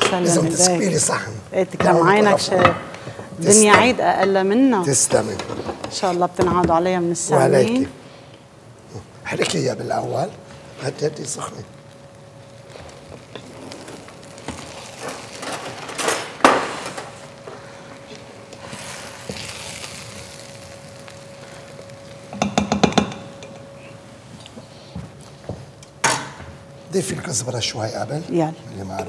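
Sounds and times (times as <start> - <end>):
loud knock on pot: 22.3 - 23.3.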